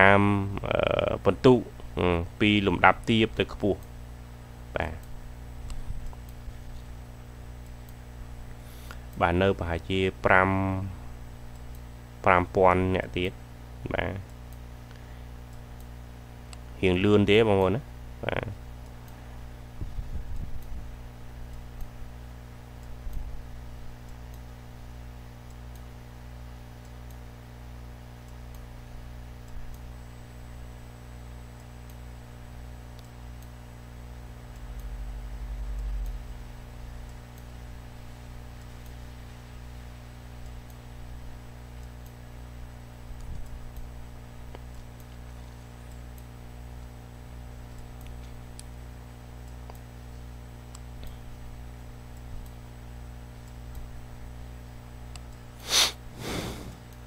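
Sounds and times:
low electrical hum: 0:00.0 - 0:57.0
faint clicks: 0:05.0 - 0:09.2, 0:11.4 - 0:12.0, 0:43.1 - 0:48.8, 0:49.4 - 0:54.0, 0:55.1 - 0:56.0.

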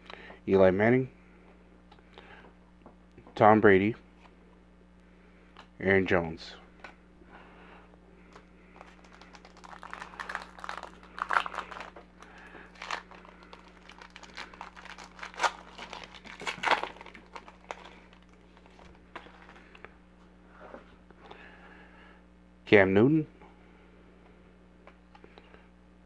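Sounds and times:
foil wrapper tearing and crinkling: 0:08.3 - 0:19.6.

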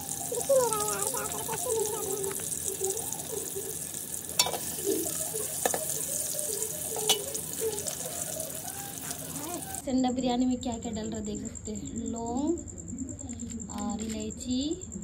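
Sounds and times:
metal spoon knocking on pot: 0:04.4 - 0:04.9, 0:05.5 - 0:06.0, 0:07.0 - 0:07.4.

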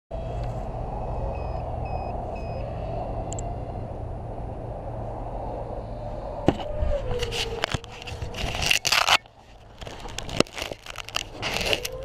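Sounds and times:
camera handling noise: 0:06.5 - 0:12.0.

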